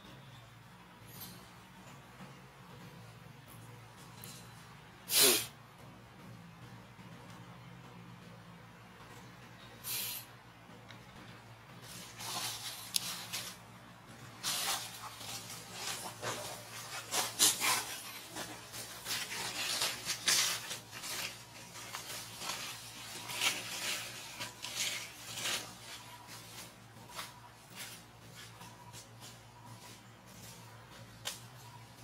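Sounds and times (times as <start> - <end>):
dry leaves crackling and rustling: 14.3 - 28.5.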